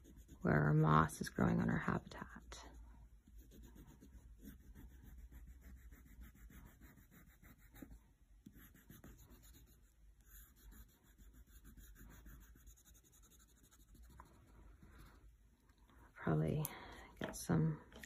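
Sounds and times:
crayon scratching on paper: 0.0s - 0.8s, 2.1s - 14.4s.

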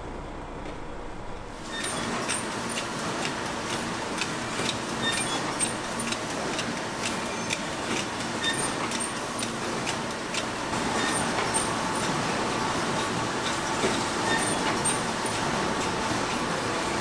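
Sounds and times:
production-line machinery din: 0.0s - 17.0s.

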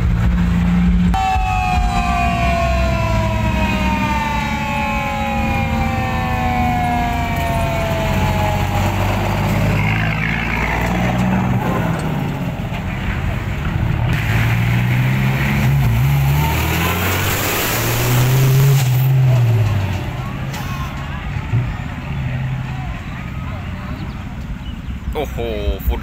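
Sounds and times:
diesel truck engine rumbling: 0.0s - 26.0s
horn tone sliding down in pitch: 1.1s - 11.6s.

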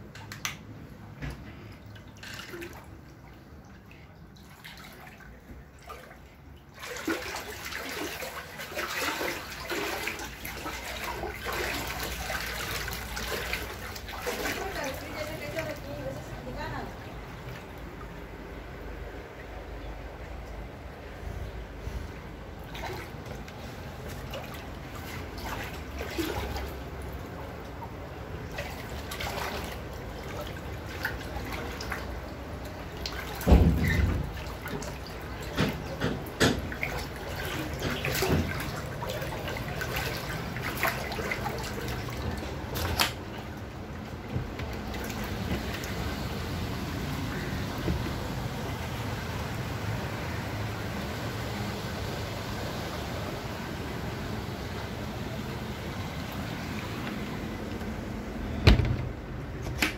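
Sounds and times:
floodwater sloshing and splashing: 0.0s - 59.9s
steady rush of water: 4.0s - 58.9s
heavy splash or thump: 33.3s - 38.8s.

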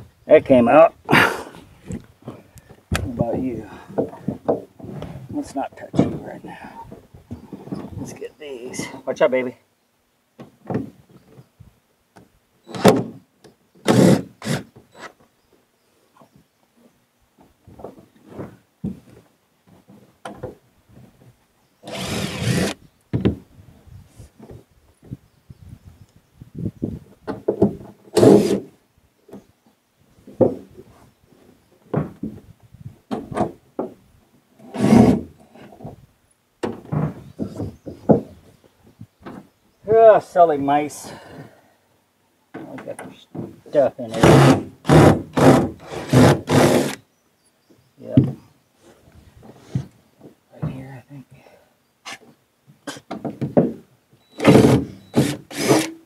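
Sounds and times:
knocks and bumps of wooden panel: 2.9s - 5.2s, 10.4s - 11.1s, 12.2s - 13.2s, 23.1s - 23.5s, 26.8s - 28.6s, 30.2s - 30.8s, 31.9s - 32.5s, 33.1s - 34.0s, 36.6s - 38.5s, 48.1s - 48.4s, 52.9s - 55.4s
wooden panel scraping: 21.8s - 22.8s, 27.3s - 28.7s, 34.6s - 36.0s, 44.1s - 47.0s
impact driver bursts: 44.2s - 47.0s, 54.4s - 56.0s.

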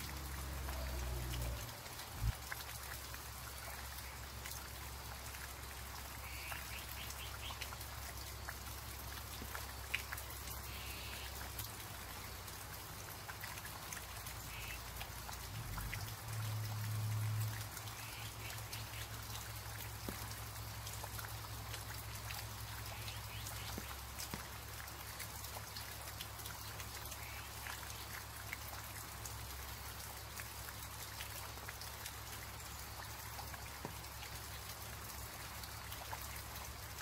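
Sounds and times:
light rain on foliage: 0.0s - 37.0s
raindrops ticking: 0.0s - 37.0s.

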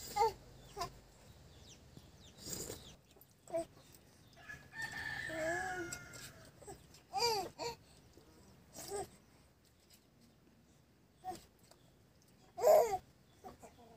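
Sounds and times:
rooster crowing: 4.4s - 6.5s.

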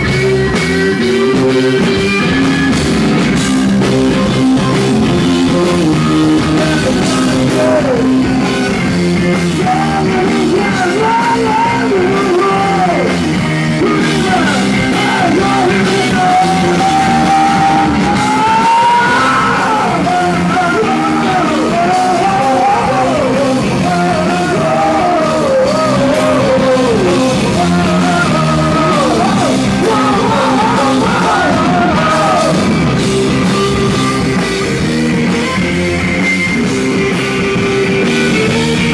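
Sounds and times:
rock band playing: 0.0s - 38.9s
man singing: 5.4s - 32.8s.

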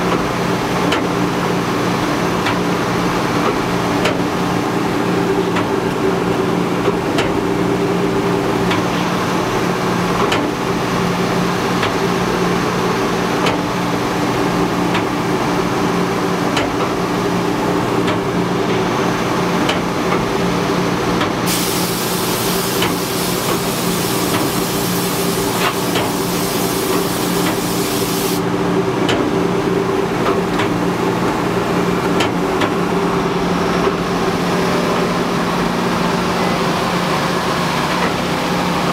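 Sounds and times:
compressed air hissing: 21.5s - 28.4s.

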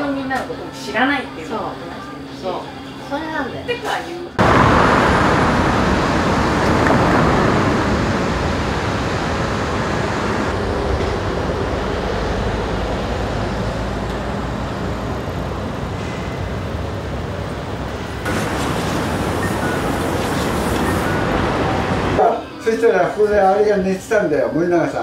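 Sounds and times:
city street traffic: 4.3s - 23.6s.

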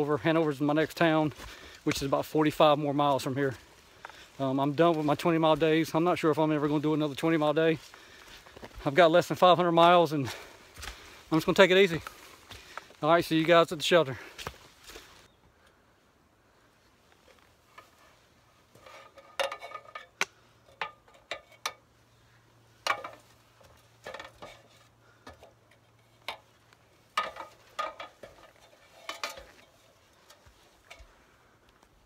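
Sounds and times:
metallic clanks on ladder rungs: 18.8s - 21.9s, 22.8s - 26.5s, 27.1s - 31.1s.

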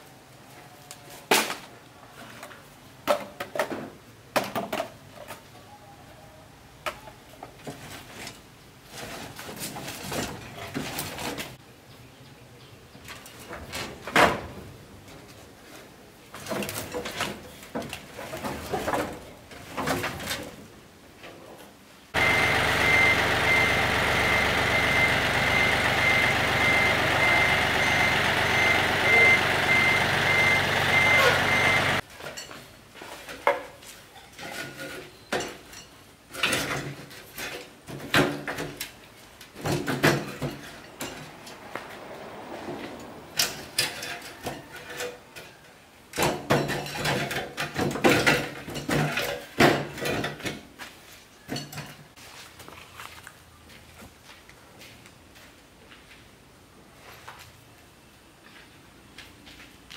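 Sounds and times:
loud machine noise: 22.2s - 32.0s
pulsing high beep: 22.2s - 32.0s
metal clanks and knocks: 39.6s - 41.7s, 46.2s - 50.7s.

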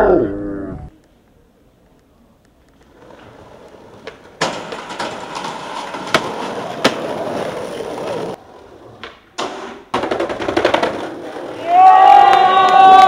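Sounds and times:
skateboard wheels rolling on brick: 2.5s - 13.0s
skateboard clacking on ground: 2.6s - 12.4s.

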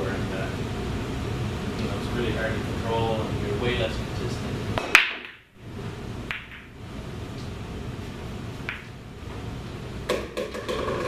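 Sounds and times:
pool balls clicking: 4.8s - 5.6s, 6.2s - 6.8s, 8.6s - 9.0s, 10.0s - 11.0s.

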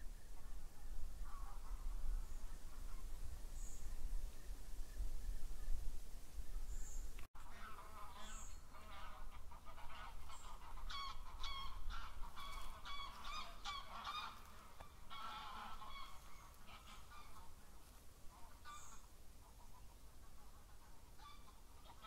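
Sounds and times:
geese honking: 7.4s - 22.0s.

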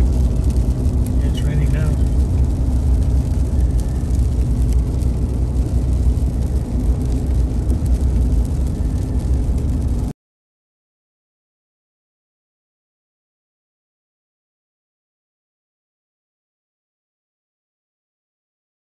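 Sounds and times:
vehicle engine droning: 0.0s - 10.1s.

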